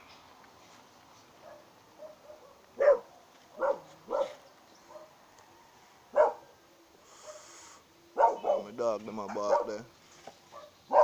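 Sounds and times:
dog barking: 1.4 - 5.2, 6.1 - 6.5, 7.2 - 7.5, 8.2 - 9.8, 10.5 - 11.0
faint dog yaps: 8.2 - 8.7.

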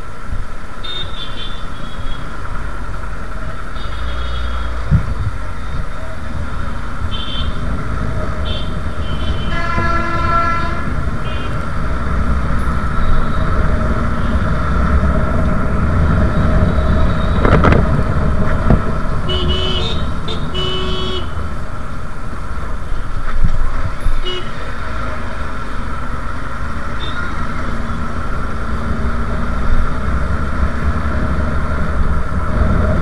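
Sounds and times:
traffic engines and road noise: 0.0 - 33.0
vehicle horns honking: 0.8 - 2.3, 3.7 - 5.0, 7.0 - 11.8, 12.6 - 14.6, 16.0 - 17.8, 19.1 - 21.5, 24.0 - 24.9, 26.8 - 28.1.

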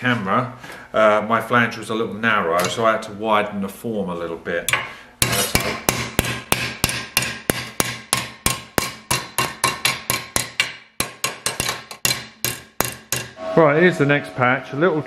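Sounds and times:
hammer striking sheet metal: 4.7 - 15.0.

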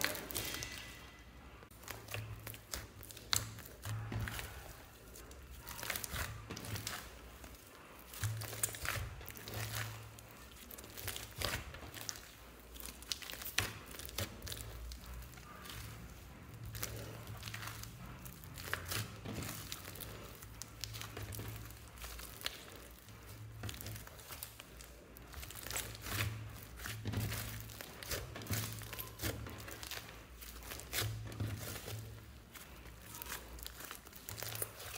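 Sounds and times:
slime squishing and crackling: 0.0 - 34.9.

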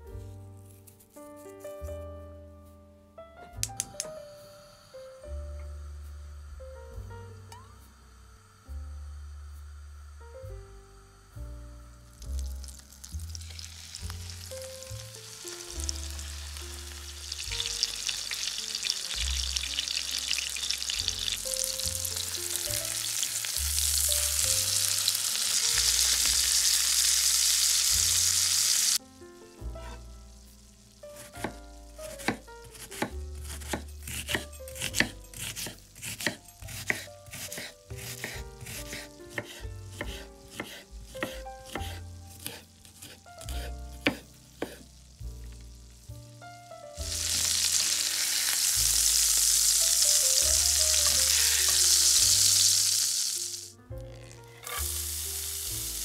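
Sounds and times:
quiet background music: 0.0 - 56.0
chicken sizzling in frying pan: 11.1 - 34.2, 36.9 - 56.0
knife chopping on wooden board: 31.2 - 44.9.

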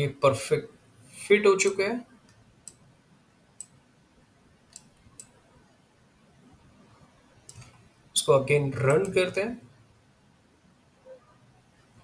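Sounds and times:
faint computer mouse clicks: 1.6 - 2.8, 3.6 - 3.8, 4.7 - 5.4.

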